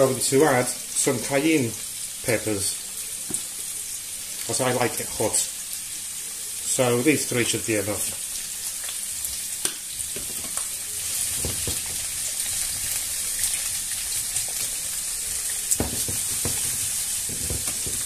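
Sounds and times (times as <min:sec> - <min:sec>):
food sizzling in frying pan: 0:00.0 - 0:18.0
spatula knocking pan: 0:11.4 - 0:12.1, 0:15.8 - 0:18.0.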